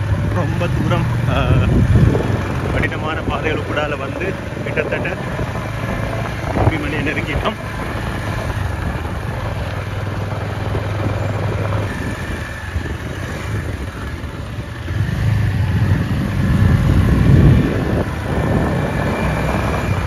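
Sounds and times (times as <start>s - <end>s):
vehicle engine running: 0.0s - 20.0s.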